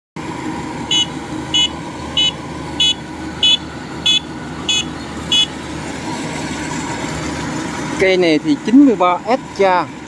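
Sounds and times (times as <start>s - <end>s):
diesel engine running: 0.2s - 10.0s
warning beeper beeping: 0.9s - 5.5s.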